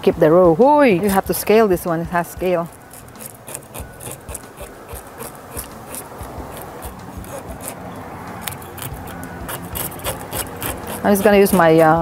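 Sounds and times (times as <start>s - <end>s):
knife scraping fish scales: 2.6s - 12.0s.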